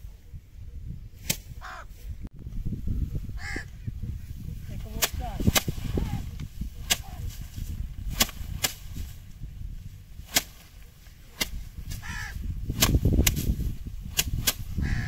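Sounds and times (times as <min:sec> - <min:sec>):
rice stalks whacked on concrete: 0:05.0 - 0:09.2, 0:10.2 - 0:12.1, 0:12.7 - 0:14.7.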